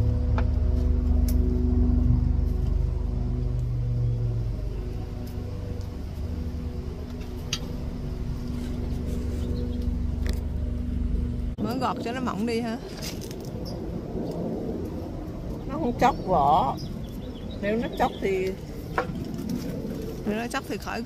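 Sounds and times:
droning tone: 0.0 - 12.6
engine rumbling: 0.0 - 21.0.

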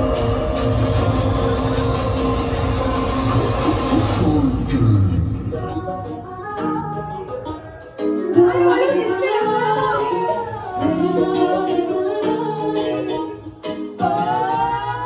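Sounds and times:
pop music with female vocals: 0.0 - 15.0.

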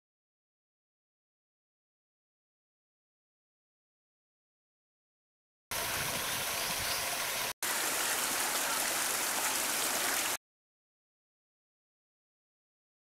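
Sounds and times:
waterfall spilling into pond: 5.7 - 10.4.

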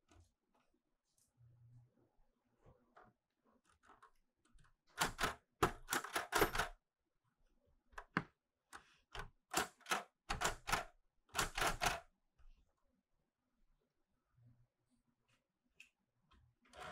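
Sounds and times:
manual typewriter typing: 5.0 - 6.8, 9.2 - 12.0.

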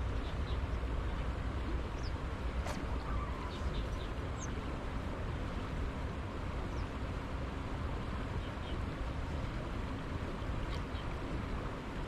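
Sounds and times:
wind rumble on microphone: 0.0 - 12.0
faint bird chirps: 2.9 - 4.6.

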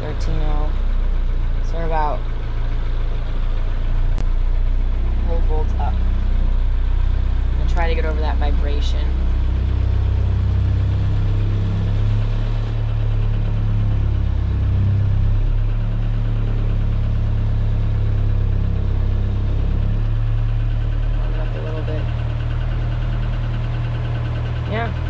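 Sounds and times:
diesel engine humming: 0.0 - 25.0.

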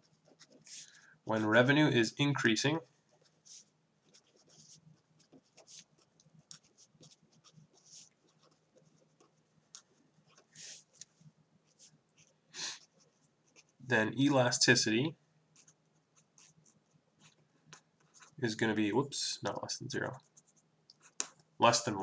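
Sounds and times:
pen scratching on paper: 0.0 - 1.0, 3.1 - 13.8, 15.6 - 18.4.

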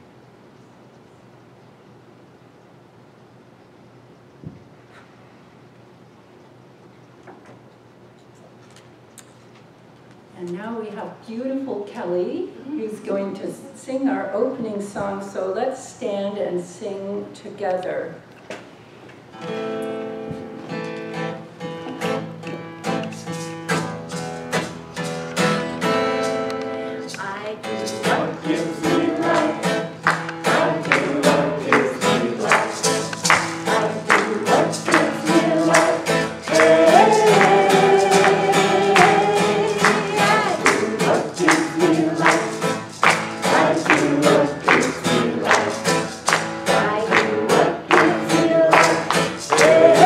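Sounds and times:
acoustic guitar strumming: 19.3 - 50.0
woman singing: 27.0 - 29.9, 33.7 - 42.7, 46.7 - 50.0.

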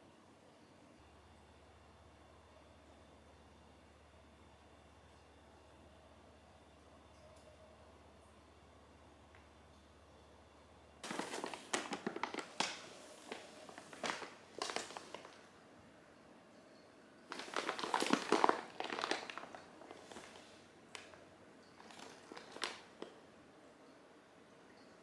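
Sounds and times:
paper bag rustling: 11.0 - 15.5, 17.3 - 21.2, 21.8 - 23.1.

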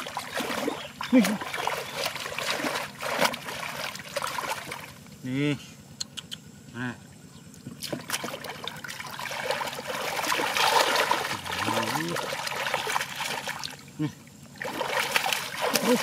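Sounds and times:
hands splashing in muddy water: 0.0 - 4.9, 7.8 - 13.8, 14.5 - 16.0.

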